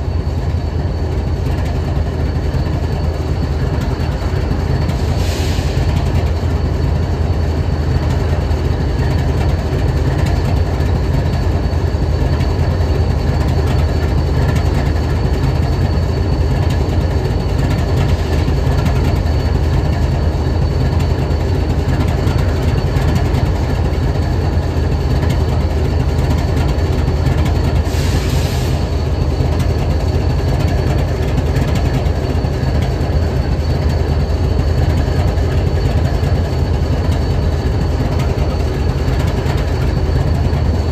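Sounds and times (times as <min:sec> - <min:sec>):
locomotive engine idling: 0:00.0 - 0:40.9.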